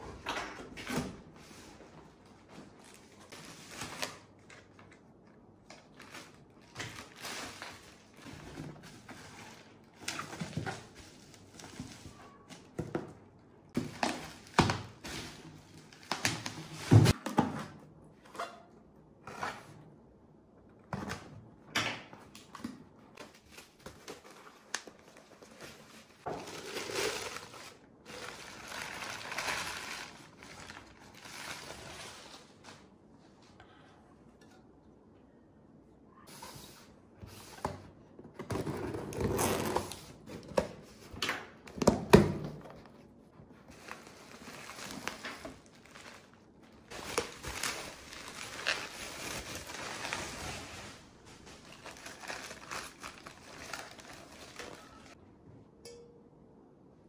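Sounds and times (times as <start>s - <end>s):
paper rustling: 43.6s - 55.2s.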